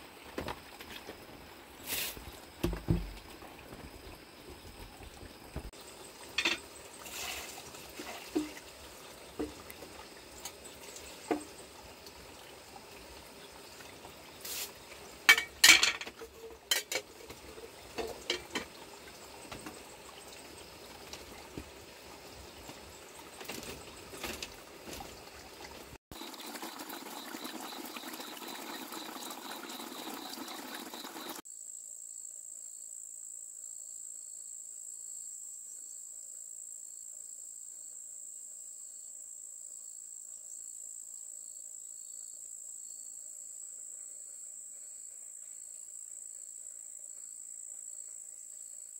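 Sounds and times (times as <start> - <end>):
crickets chirring: 0.3 - 25.5, 26.1 - 48.9
steady hiss: 1.6 - 3.0, 5.8 - 9.5, 14.2 - 16.0
objects clattering on bamboo floor: 1.9 - 5.7, 6.3 - 8.6, 15.3 - 18.8, 22.7 - 25.2.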